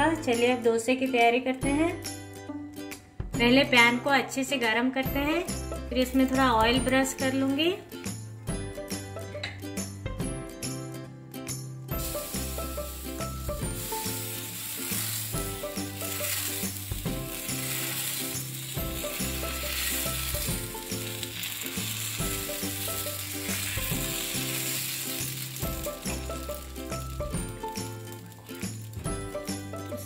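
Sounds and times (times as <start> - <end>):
background music with bass: 5.1 - 21.3, 25.6 - 30.0
batter sizzling on hot pan: 11.9 - 30.0.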